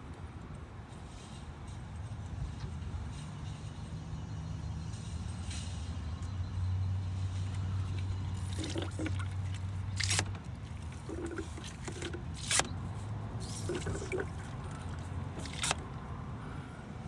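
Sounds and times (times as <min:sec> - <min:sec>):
fluid trickling into container: 0:08.3 - 0:12.4, 0:13.4 - 0:15.8.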